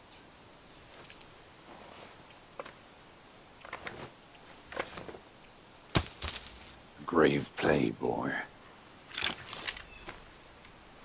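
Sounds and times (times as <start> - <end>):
soft rustles: 0.8 - 2.8.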